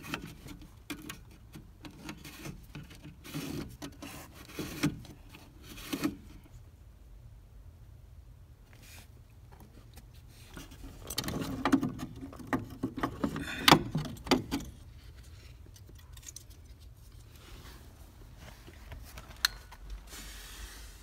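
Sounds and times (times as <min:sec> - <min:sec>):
plastic and metal parts rattling: 0:10.5 - 0:17.0.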